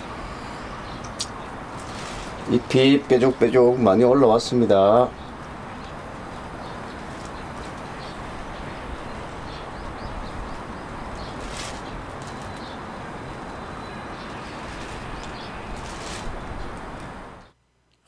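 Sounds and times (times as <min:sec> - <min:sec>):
distant town: 0:00.0 - 0:17.6
wind: 0:00.0 - 0:18.0.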